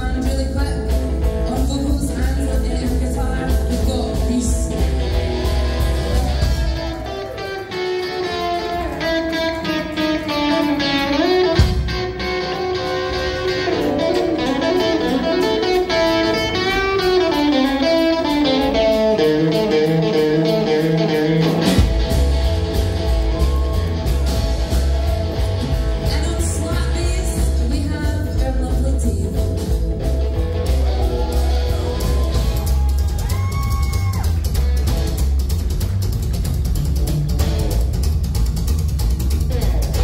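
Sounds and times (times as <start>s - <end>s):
rockabilly band playing: 0.0s - 40.0s
electric guitar solo: 3.3s - 27.4s, 29.3s - 35.2s.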